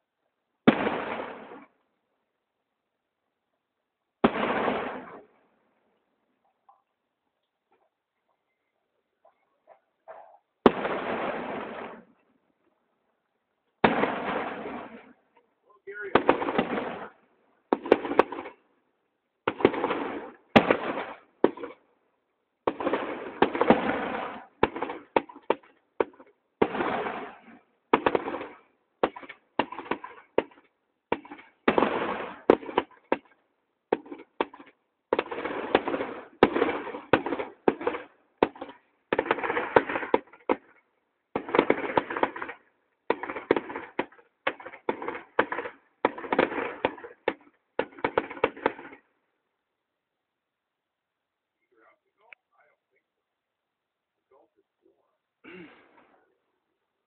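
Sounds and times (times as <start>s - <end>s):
fireworks bursting: 0.6s - 1.8s, 4.2s - 5.3s, 10.6s - 12.2s, 13.8s - 15.2s, 15.8s - 18.6s, 19.4s - 21.8s, 22.6s - 49.0s.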